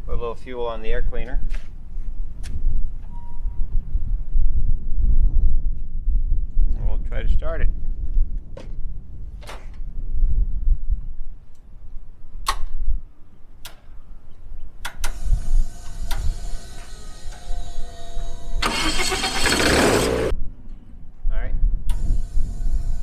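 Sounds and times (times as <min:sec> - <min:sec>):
sharp clicks: 0:12.4 - 0:12.8, 0:13.6 - 0:13.9, 0:14.8 - 0:17.5
electric starter whine: 0:15.0 - 0:20.3, 0:21.9 - 0:23.0
aircraft engine firing roughly: 0:15.1 - 0:20.3.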